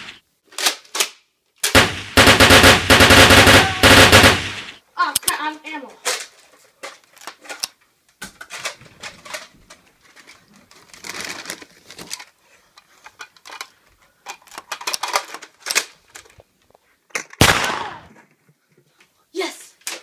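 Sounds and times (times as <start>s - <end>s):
plastic blaster clicks and clacks: 13.1s - 16.4s.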